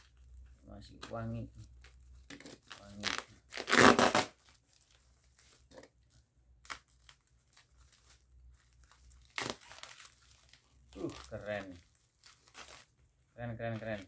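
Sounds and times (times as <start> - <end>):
plastic wrap rustling: 0.0 - 14.0
packing tape ripping: 2.2 - 4.6, 9.2 - 12.9.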